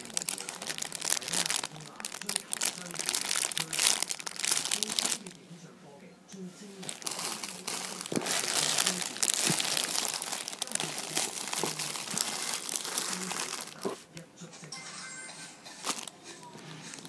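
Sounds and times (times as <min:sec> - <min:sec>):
plastic bags crinkling: 0:00.0 - 0:05.4, 0:06.8 - 0:14.0, 0:15.6 - 0:17.0.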